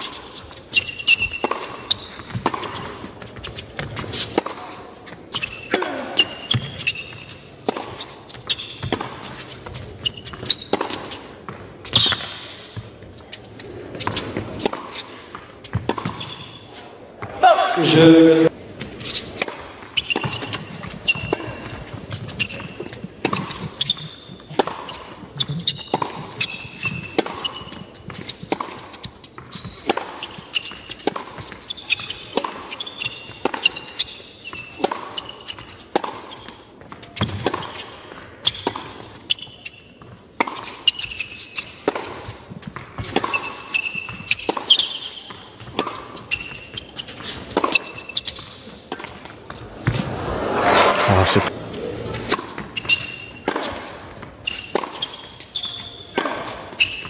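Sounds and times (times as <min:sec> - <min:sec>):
shoes squeaking on court: 0:00.0 - 0:17.5, 0:18.7 - 0:57.0
tennis ball bouncing: 0:00.8 - 0:05.8, 0:06.4 - 0:13.3, 0:13.9 - 0:16.3, 0:18.8 - 0:34.0, 0:41.8 - 0:50.2
racket striking tennis ball: 0:00.8 - 0:13.1, 0:13.9 - 0:16.3, 0:45.6 - 0:55.0.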